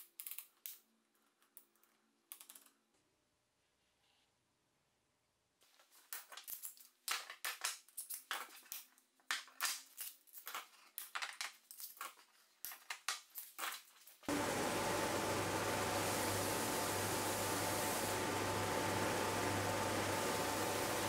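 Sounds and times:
edge sander running: 0:14.3 - 0:21.0.

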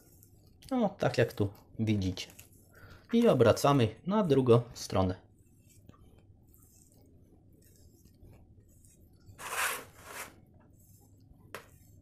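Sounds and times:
knife scraping on cutting board: 0:09.4 - 0:10.4.

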